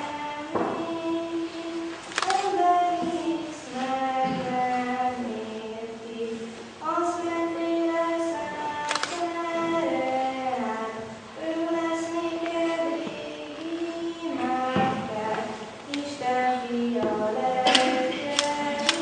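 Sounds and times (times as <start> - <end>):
female choir singing: 0.0 - 19.0.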